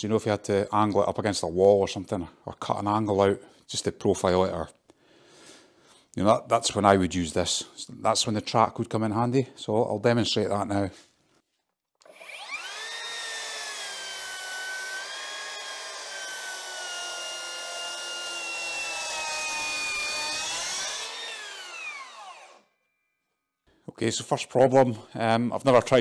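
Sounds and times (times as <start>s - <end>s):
circular saw cutting wood: 12.0s - 22.8s.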